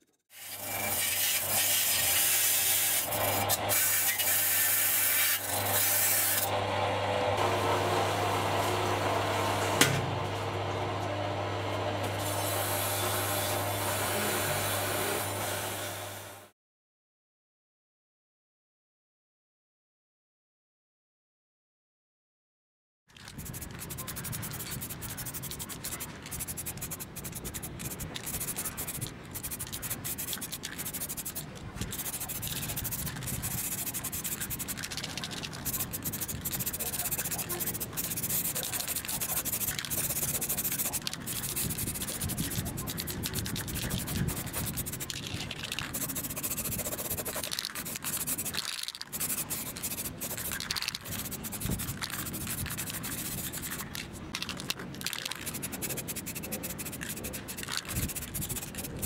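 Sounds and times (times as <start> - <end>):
spray paint hissing: 0.3 - 6.5, 23.2 - 59.0.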